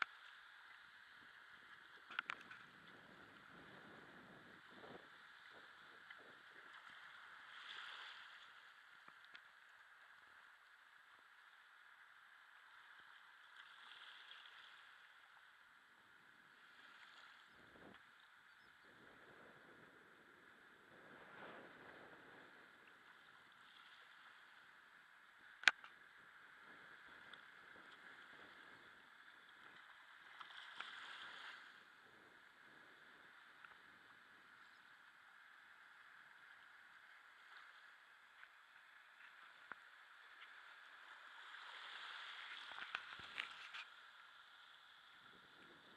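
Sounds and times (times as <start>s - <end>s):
faint ticks: 0.0s - 3.1s, 4.8s - 11.9s, 25.4s - 31.6s, 33.5s - 45.8s
small waves lapping on rocks: 0.0s - 45.9s.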